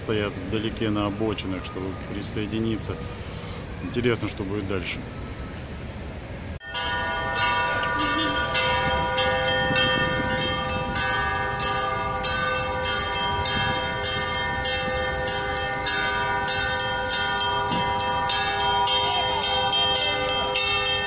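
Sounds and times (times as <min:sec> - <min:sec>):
church bells pealing: 0:06.6 - 0:21.0.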